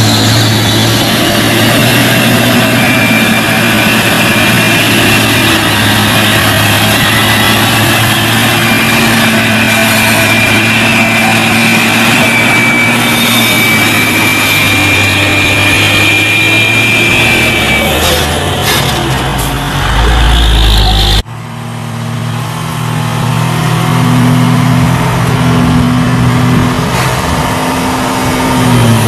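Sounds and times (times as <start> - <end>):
thin high whine: 0.0 - 18.3
diesel truck engine labouring: 0.0 - 29.0.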